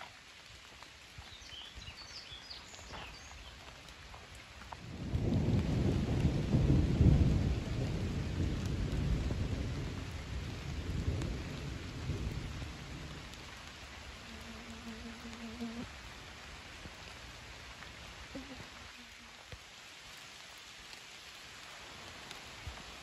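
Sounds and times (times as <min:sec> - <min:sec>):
rain falling: 0:00.0 - 0:23.0
thunder rolling: 0:05.0 - 0:13.3.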